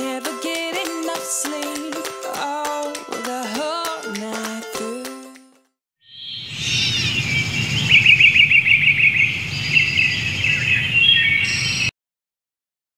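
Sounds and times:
music: 0.0s - 5.8s
rapid bird trill: 6.0s - 11.9s
small birds chirping: 6.0s - 11.9s.

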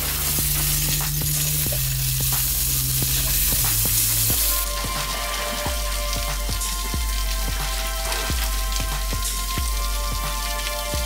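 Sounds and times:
background music with low notes: 0.0s - 11.0s
food sizzling as it fries: 0.0s - 11.0s.

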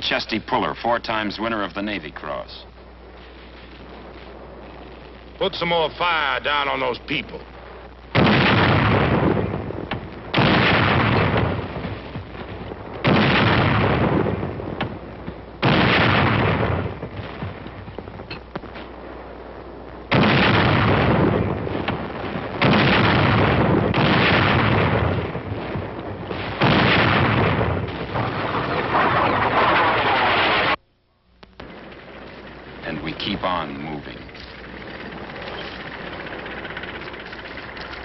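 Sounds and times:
howitzer booms: 2.1s - 30.8s, 31.6s - 38.0s.

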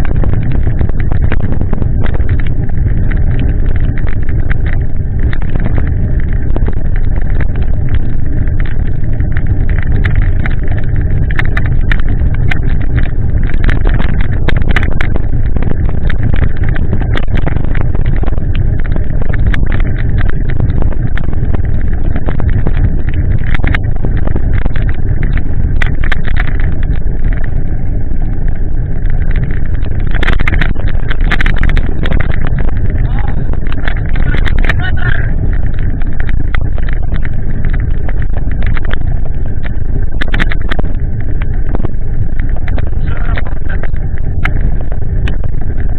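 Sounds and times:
heavy rain: 0.0s - 45.9s
sharp ticks: 0.0s - 45.9s
tyres on wet path: 0.0s - 45.9s
wind noise on microphone: 0.0s - 45.9s.

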